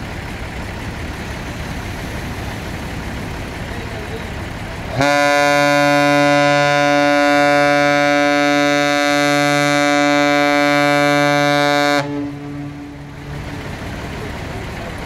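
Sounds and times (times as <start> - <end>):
ship's horn blast: 4.9 - 13.6.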